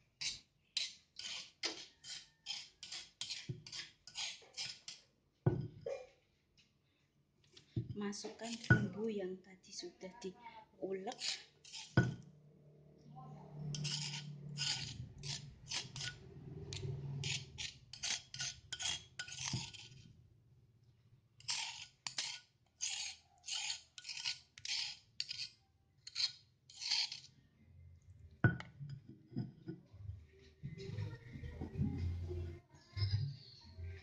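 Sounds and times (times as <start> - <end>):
kitchen utensil scraping: 0.1 - 5.6, 8.1 - 9.0, 11.0 - 12.2, 13.5 - 20.1, 21.4 - 27.4.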